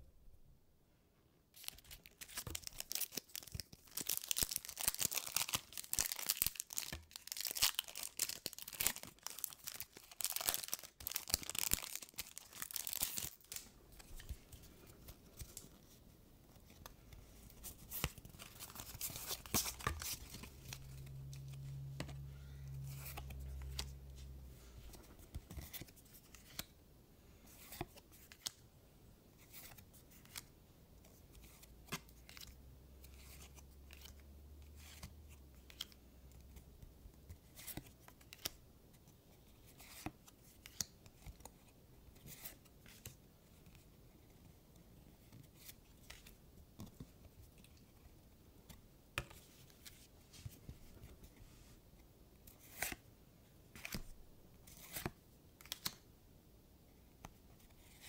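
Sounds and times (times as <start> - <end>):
foil pack crinkling and tearing: 1.6 - 13.6
low steady hum: 13.5 - 27.6.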